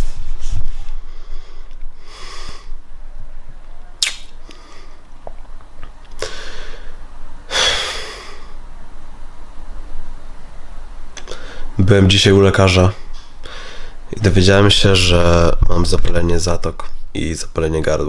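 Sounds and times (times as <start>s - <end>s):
man breathing heavily through nose: 0.9s - 2.8s, 4.4s - 5.1s, 6.2s - 8.6s, 11.3s - 11.8s, 13.0s - 14.1s.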